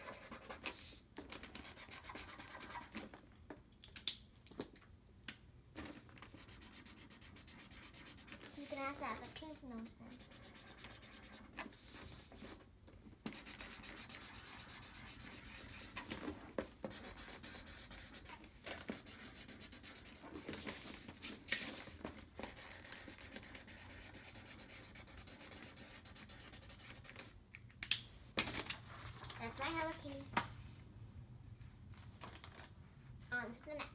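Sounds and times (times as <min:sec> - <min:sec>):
marker rubbing on paper: 0:00.0 - 0:01.0, 0:01.6 - 0:03.0, 0:06.3 - 0:12.6, 0:13.3 - 0:27.3.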